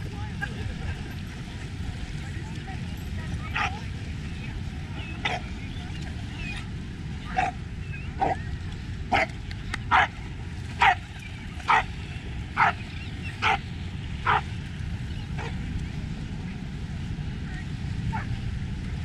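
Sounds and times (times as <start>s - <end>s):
low background rumble: 0.0s - 19.0s
dog barking: 9.9s - 10.1s, 10.8s - 11.0s, 11.7s - 11.9s, 12.6s - 12.8s, 13.4s - 13.6s, 14.2s - 14.5s.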